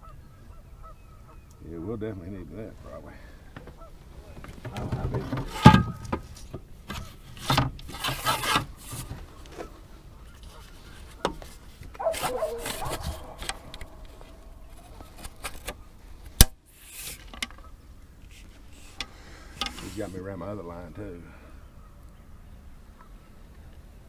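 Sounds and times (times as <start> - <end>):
rubbing and scraping handling noise: 4.8 - 9.8, 10.4 - 15.9, 16.8 - 20.2.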